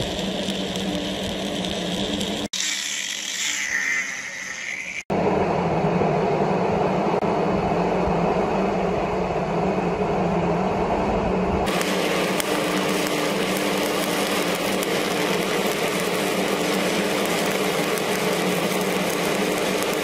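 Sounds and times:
welding arc crackling hiss: 0.0 - 5.1, 11.6 - 20.0
low hum: 0.0 - 20.0.

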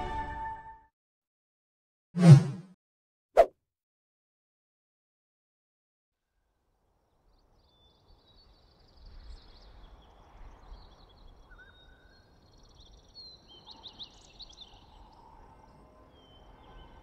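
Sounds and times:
small birds chirping: 7.3 - 17.0.

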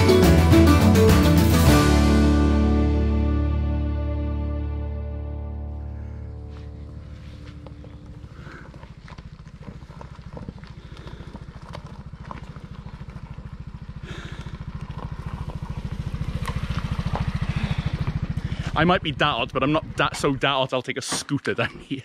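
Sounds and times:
scooter engine puttering: 6.5 - 20.5.

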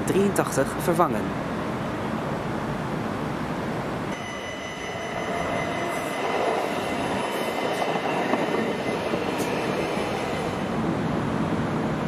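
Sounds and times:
steady high whine: 4.0 - 12.0
tram wheels rumbling on rails: 4.1 - 12.0.

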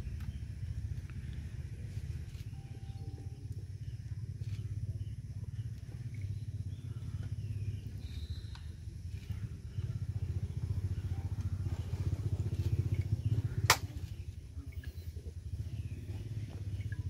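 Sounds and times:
small engine pulsing rumble: 0.0 - 17.0
sharp crack: 13.6 - 14.0.

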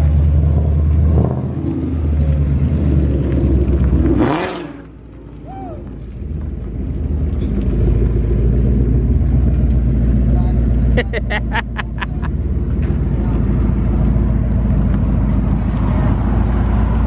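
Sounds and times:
car engine rumbling: 0.0 - 17.0.

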